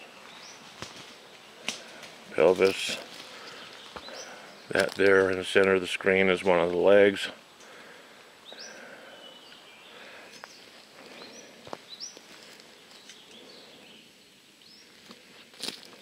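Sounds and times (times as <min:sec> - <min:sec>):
faint forest background: 0:00.0 - 0:16.0
footsteps in undergrowth: 0:00.2 - 0:07.0, 0:10.2 - 0:13.5, 0:14.7 - 0:16.0.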